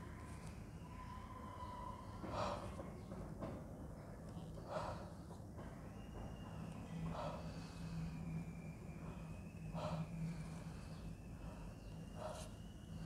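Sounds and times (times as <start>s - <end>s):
faint steady hum: 0.0s - 13.0s
man breathing deeply: 7.0s - 13.0s.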